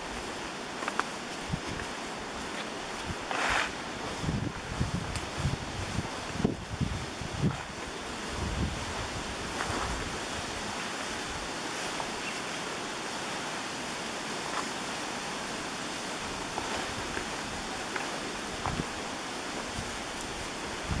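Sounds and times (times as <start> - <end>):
footsteps through leafy undergrowth: 0.0 - 21.0
steady outdoor hiss: 0.0 - 21.0.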